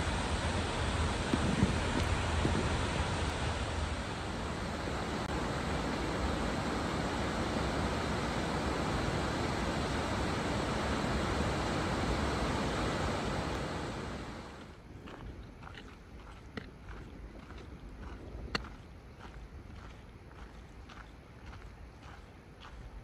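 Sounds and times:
waterfall roaring: 0.0 - 14.7
wind rumbling on microphone: 0.0 - 23.0.

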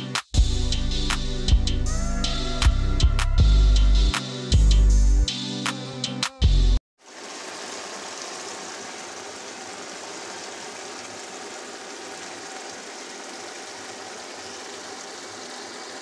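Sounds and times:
curry bubbling and sizzling: 7.0 - 16.0.

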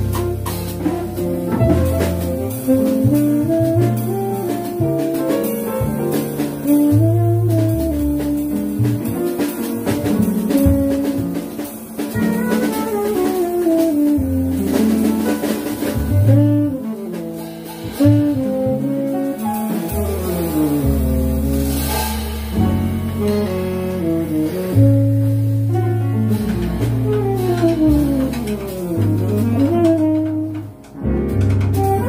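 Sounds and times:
saxophone: 0.0 - 5.3, 6.6 - 8.8, 12.2 - 21.9, 23.1 - 31.0, 31.8 - 32.0
drum kit with cymbals: 0.0 - 32.0
piano: 0.0 - 32.0
upright bass: 0.0 - 32.0.

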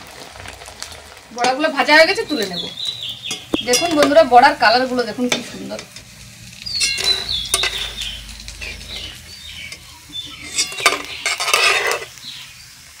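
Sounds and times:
food sizzling in hot oil: 0.0 - 13.0
metal spoon scraping a pan: 5.0 - 12.3.

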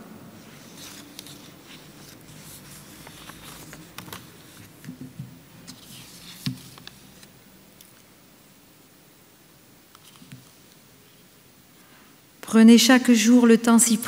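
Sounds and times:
paper rustling: 0.4 - 8.0, 9.9 - 10.8.

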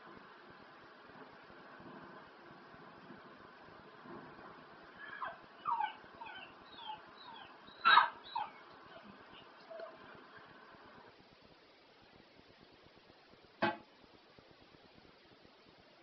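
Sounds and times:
dog howling and whining: 5.0 - 10.2.

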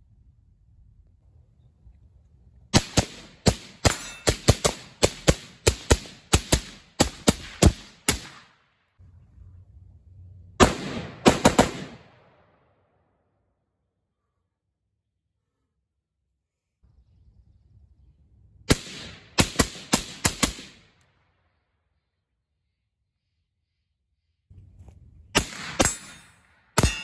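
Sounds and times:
rapid rifle gunshots: 2.7 - 8.6, 10.6 - 12.4, 18.7 - 21.0.

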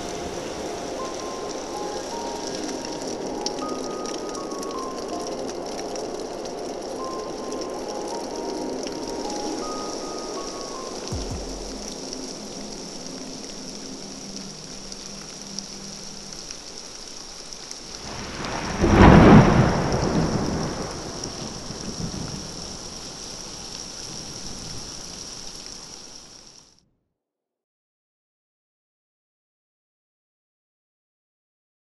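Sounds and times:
thunder rumbling: 0.0 - 15.0, 18.0 - 25.2
steady rain: 0.0 - 26.8.

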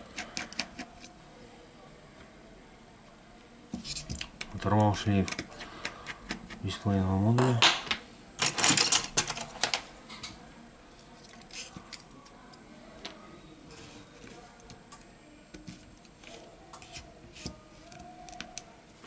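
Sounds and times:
metal parts clicking and clinking: 8.4 - 9.8.

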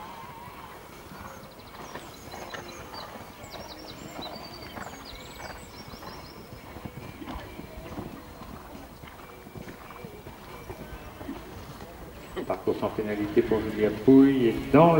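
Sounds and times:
horse hoofbeats on sand: 0.0 - 14.9.

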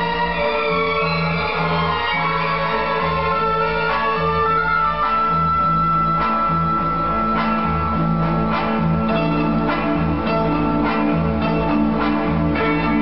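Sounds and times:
orchestral music: 0.0 - 13.0
pulsing bass line: 0.0 - 13.0
repeated plucked notes: 3.6 - 13.0.

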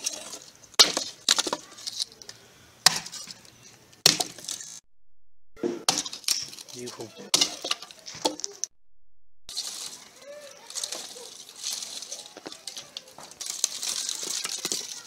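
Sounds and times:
wood sticks clattering: 9.5 - 15.0.

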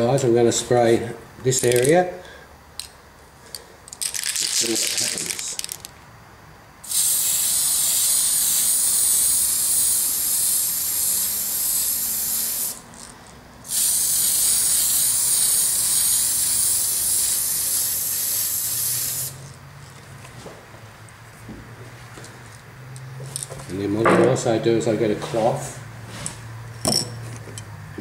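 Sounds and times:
spray paint can hissing: 6.8 - 19.6.

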